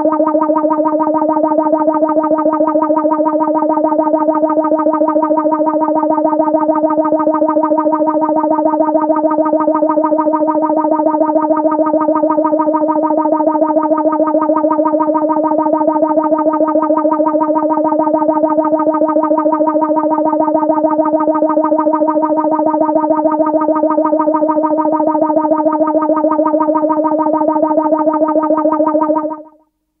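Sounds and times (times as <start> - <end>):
pulsing electronic alarm tone: 0.0 - 29.6.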